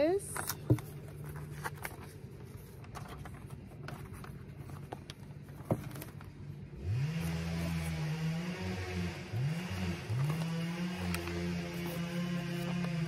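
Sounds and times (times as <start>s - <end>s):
paper leaflet rustling: 0.3s - 6.6s, 9.7s - 13.0s
engine revving: 6.7s - 13.0s.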